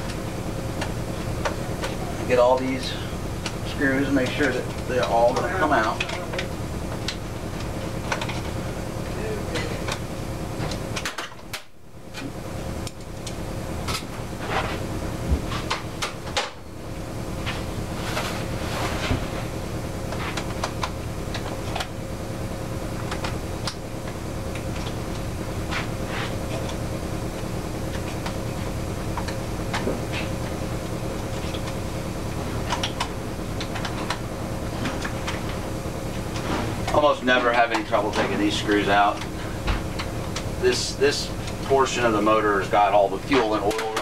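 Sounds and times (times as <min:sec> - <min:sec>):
steady background hum: 0:00.0 - 0:44.0.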